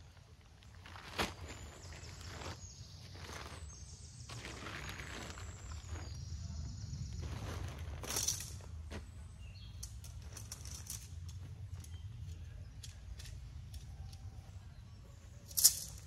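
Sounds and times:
camping gear clicks and rustles: 7.4 - 14.8, 15.4 - 16.0.

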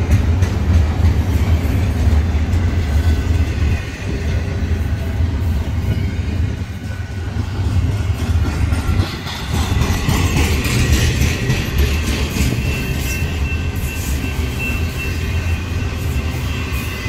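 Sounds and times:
train wheels rumbling on rails: 0.0 - 17.0
thin high squeal: 12.2 - 17.0.

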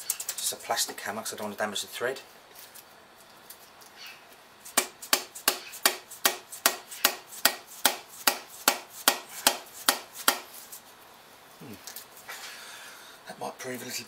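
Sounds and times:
mallet hammering on metal: 4.8 - 10.5.

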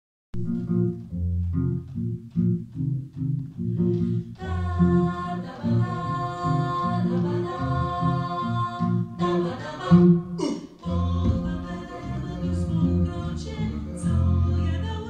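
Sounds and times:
low voices singing bass line: 3.8 - 15.0
upper voices holding chords: 3.9 - 15.0.

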